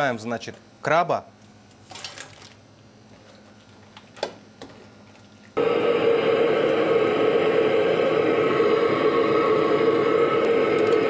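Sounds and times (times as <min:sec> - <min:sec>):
wok burner rushing with hum: 0:05.6 - 0:11.0.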